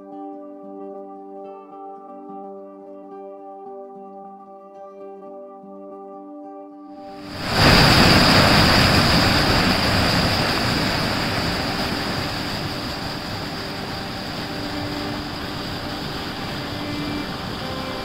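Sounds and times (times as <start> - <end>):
water rushing from outlet: 7.2 - 18.0.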